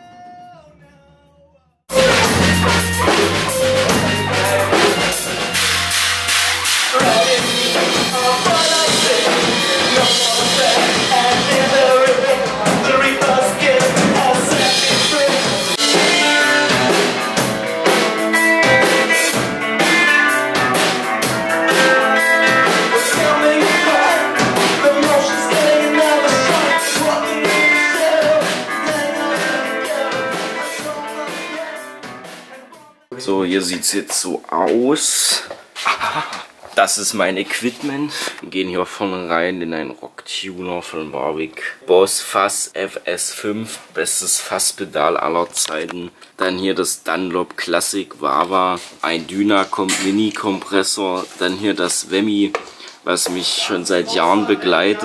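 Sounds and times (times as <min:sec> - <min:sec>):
alternative rock music: 0:01.9 - 0:33.1.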